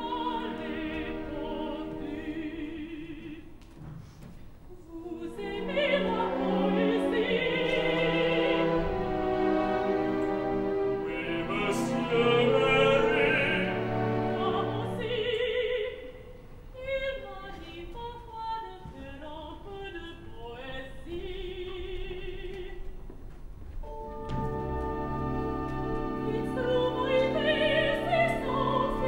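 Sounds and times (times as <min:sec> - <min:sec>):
orchestra playing: 0:00.0 - 0:02.7, 0:05.4 - 0:15.4, 0:23.8 - 0:29.0
woman singing opera with vibrato: 0:00.0 - 0:03.6, 0:04.7 - 0:09.8, 0:11.0 - 0:23.0, 0:24.9 - 0:29.0.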